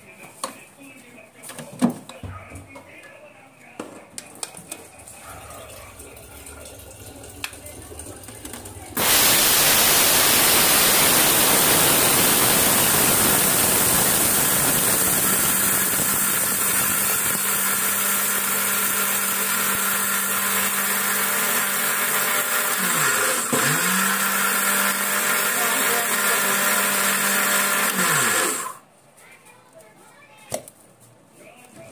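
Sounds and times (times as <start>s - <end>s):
mixer grinder grinding rice: 7.4s - 28.8s.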